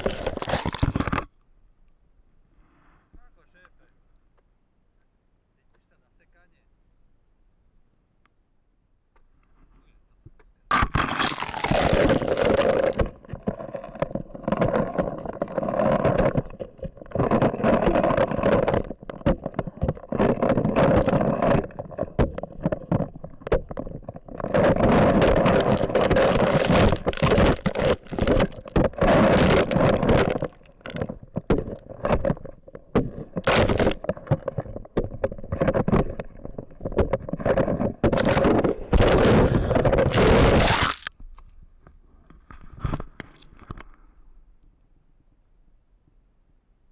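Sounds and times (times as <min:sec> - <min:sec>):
ice chunks and water splashing: 0:00.0 - 0:01.2, 0:10.7 - 0:41.1
ice cracking: 0:00.0 - 0:01.3, 0:10.7 - 0:41.2.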